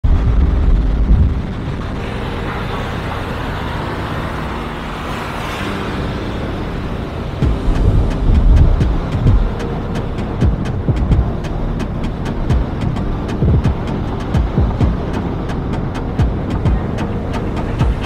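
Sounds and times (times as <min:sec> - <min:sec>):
electronic music: 0:00.0 - 0:18.0
whoosh: 0:00.0 - 0:18.0
ticking beat: 0:07.4 - 0:18.0.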